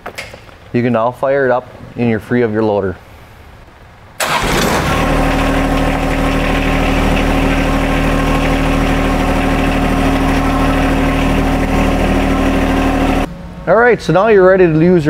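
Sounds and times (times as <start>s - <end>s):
diesel tractor engine starting: 4.2s - 13.3s
tractor engine idling: 4.2s - 13.3s.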